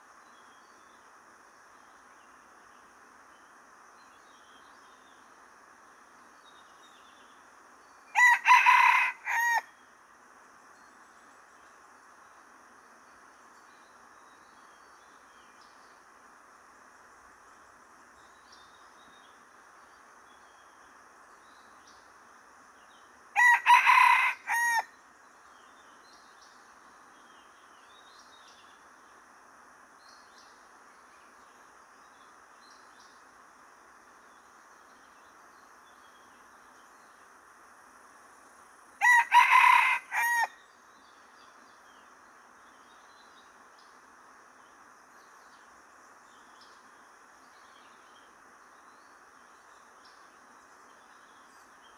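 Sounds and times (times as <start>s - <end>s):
insect drone: 0.0s - 51.9s
rooster crowing: 8.1s - 9.7s, 23.4s - 24.9s, 39.0s - 40.6s.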